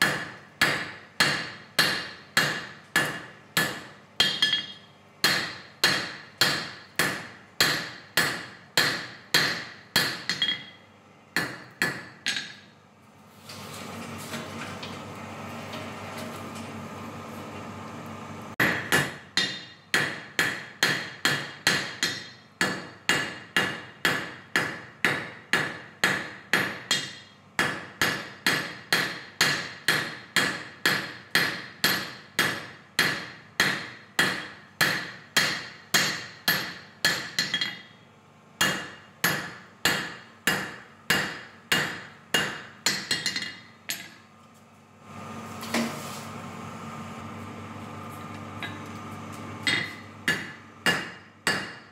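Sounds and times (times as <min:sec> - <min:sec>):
hammer ringing on anvil: 0:01.3 - 0:10.8.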